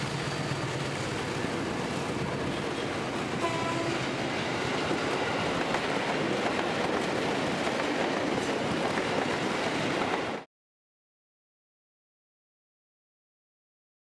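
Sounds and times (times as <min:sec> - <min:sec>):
train wheels on rails: 0:00.0 - 0:10.5.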